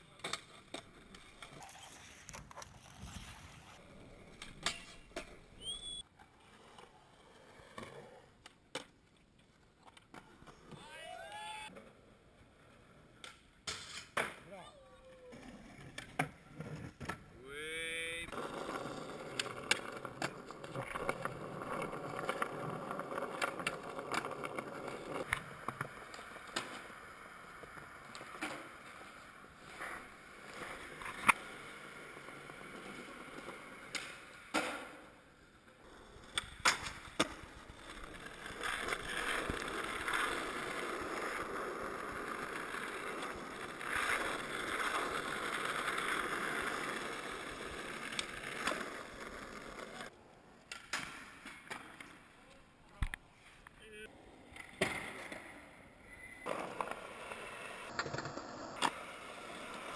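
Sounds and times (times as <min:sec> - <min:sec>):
skateboard wheels rolling: 0:00.0 - 0:59.9
skateboard clacks: 0:18.3 - 0:35.2, 0:35.9 - 0:52.2.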